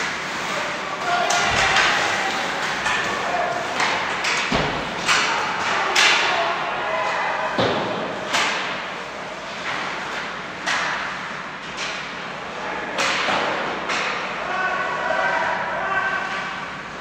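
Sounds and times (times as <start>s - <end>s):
hockey sticks and puck knocking: 1.0s - 6.4s, 7.6s - 8.8s, 9.6s - 12.1s, 13.0s - 14.2s.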